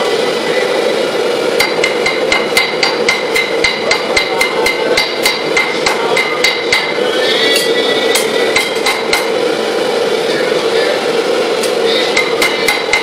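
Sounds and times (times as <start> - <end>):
hammer striking steel on anvil: 1.6 - 9.4, 11.6 - 13.0.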